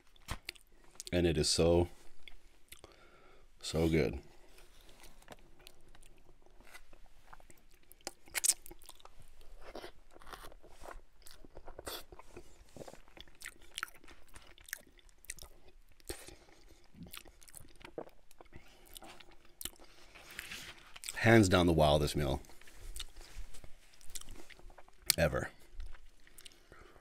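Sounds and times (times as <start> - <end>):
close chewing: 4.5 - 21.2, 22.4 - 27.0.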